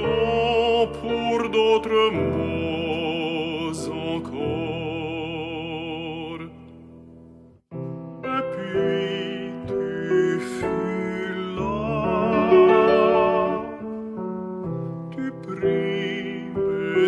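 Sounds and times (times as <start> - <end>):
piano accompaniment: 0.0 - 17.0
tenor singing operatically: 8.2 - 13.8.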